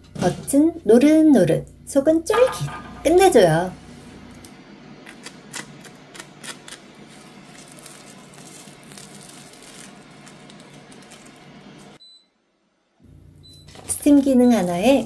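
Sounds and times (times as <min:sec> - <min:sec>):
toast crust crackling: 0:04.4 - 0:12.0.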